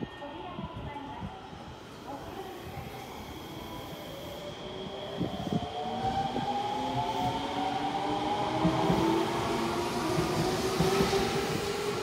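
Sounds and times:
train rolling rumble: 4.7s - 12.0s.

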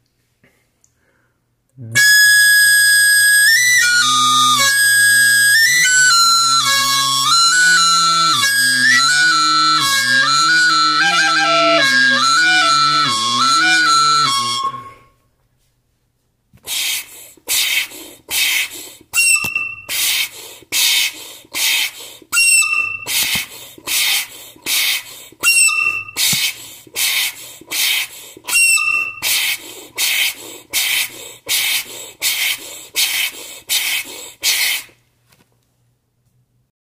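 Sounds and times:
whistly recorder squeak: 2.0s - 15.1s, 19.2s - 20.1s, 22.4s - 23.4s, 25.4s - 26.5s, 28.5s - 29.6s
breathy puffs through recorder: 4.1s - 15.1s, 23.1s - 34.9s
recorder note: 5.6s - 15.1s.

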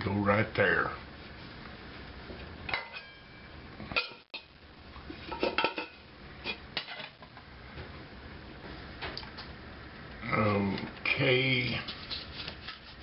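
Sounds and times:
metal pots knocking and clinking: 2.7s - 4.5s, 5.3s - 7.3s.

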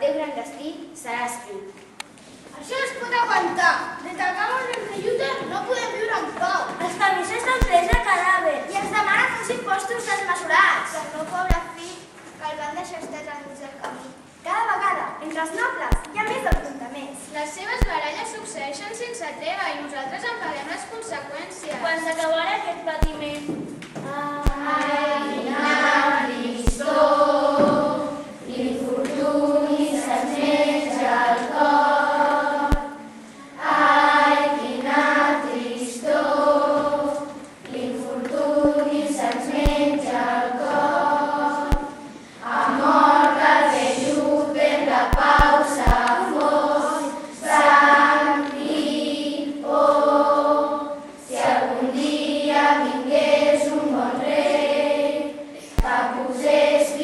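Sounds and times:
children singing in unison: 24.1s - 57.0s.

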